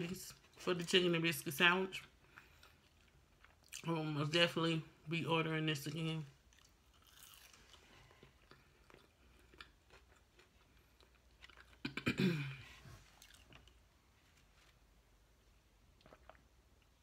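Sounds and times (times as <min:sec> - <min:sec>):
person chewing: 0:02.2 - 0:03.9, 0:06.4 - 0:12.1, 0:13.0 - 0:13.9, 0:16.0 - 0:17.0.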